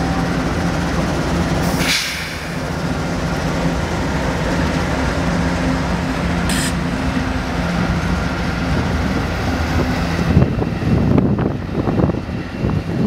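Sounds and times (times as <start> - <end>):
diesel locomotive engine hum: 0.0 - 13.0
train rumbling on rails: 0.0 - 13.0
short high hiss: 6.5 - 6.8
wind buffeting microphone: 8.1 - 13.0.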